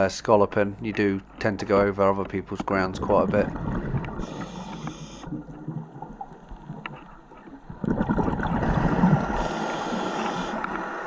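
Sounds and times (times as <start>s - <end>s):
diver exhaling bubbles underwater: 7.7s - 11.0s.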